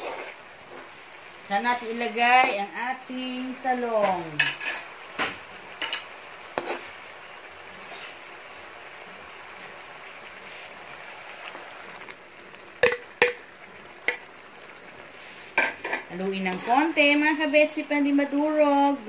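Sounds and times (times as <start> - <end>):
sauce sizzling in a wok: 0.0 - 19.0
utensil clacking on pan: 12.8 - 13.4.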